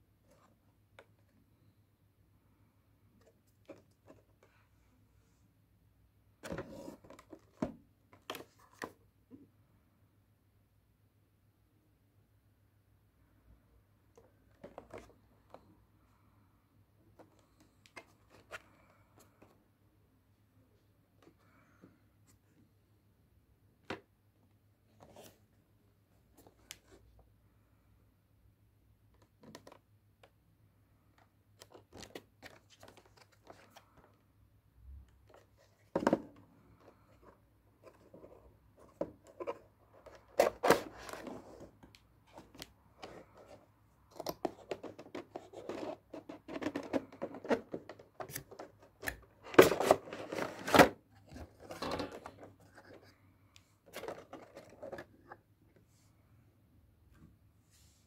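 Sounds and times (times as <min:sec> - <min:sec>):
plastic tray rustling: 0:53.8 - 0:55.2.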